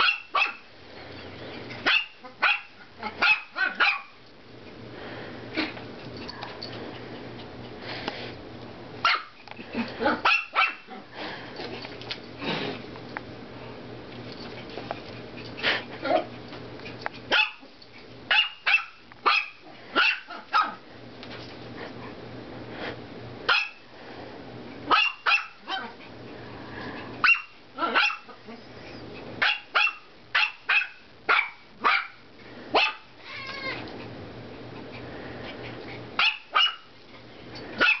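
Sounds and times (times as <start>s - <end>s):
puppy yapping: 1.8s - 4.2s, 10.1s - 10.9s, 27.2s - 28.3s.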